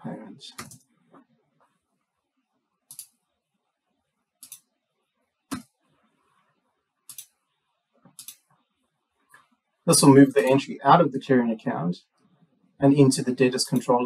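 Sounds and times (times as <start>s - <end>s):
computer mouse clicks: 0.6s - 0.9s, 2.9s - 3.2s, 4.4s - 4.7s, 5.5s - 5.8s, 7.1s - 7.4s, 8.0s - 8.6s.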